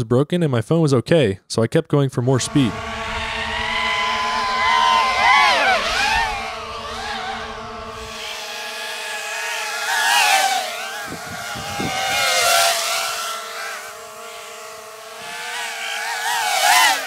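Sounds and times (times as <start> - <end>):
low steady hum: 2.2 - 9.5
drone motors whining: 2.2 - 17.0.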